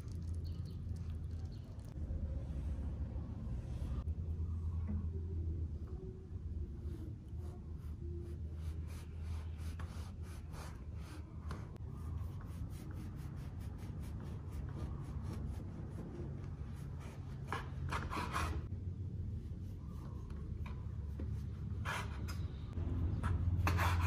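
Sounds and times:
low steady hum: 0.0s - 16.8s.

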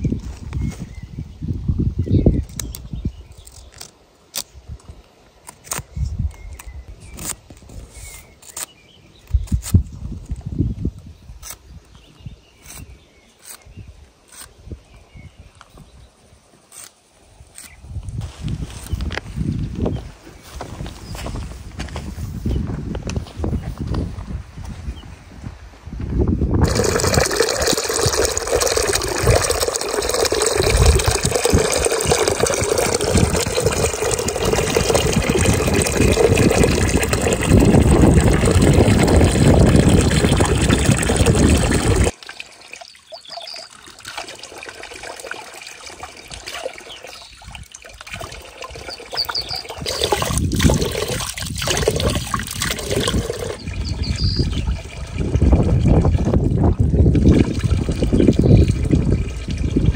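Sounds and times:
water stream splashing into pool: 26.6s - 59.9s
water trickling: 26.6s - 59.9s.

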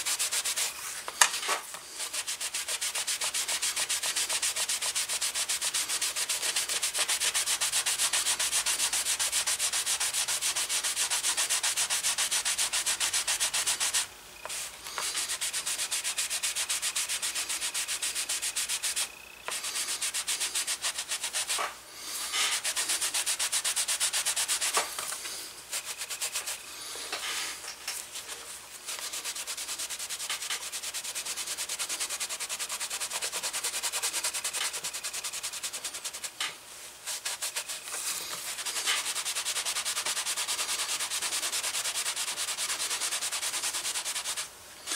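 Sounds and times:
cloth scrubbing on leather: 2.0s - 21.6s, 22.4s - 24.8s, 28.2s - 36.3s, 37.1s - 44.5s.

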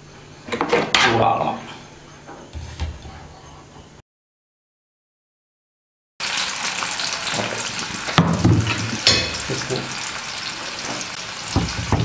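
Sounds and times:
lemon pieces sizzling in oil: 6.2s - 12.0s.

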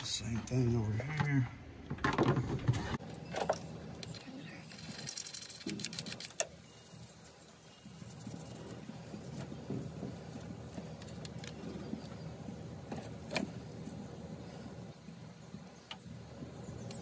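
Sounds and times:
steady low rumble: 7.9s - 17.0s.

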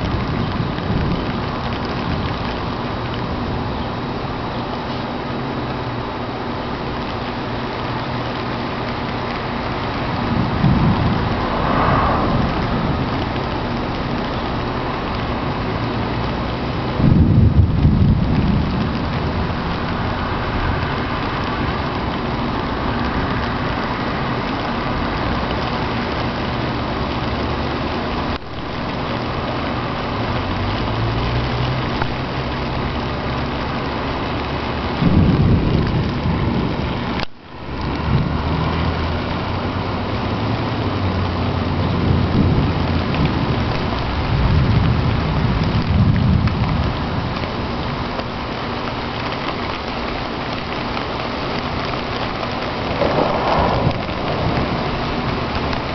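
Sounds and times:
rain falling: 0.0s - 55.9s
deep rumbling: 9.3s - 15.4s, 51.8s - 55.9s.

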